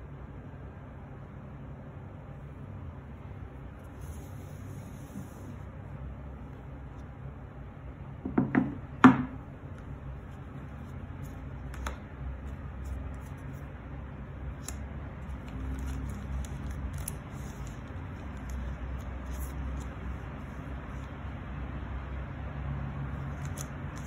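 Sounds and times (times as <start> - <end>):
paper crinkling: 9.7 - 13.8, 14.5 - 21.2, 23.2 - 24.0.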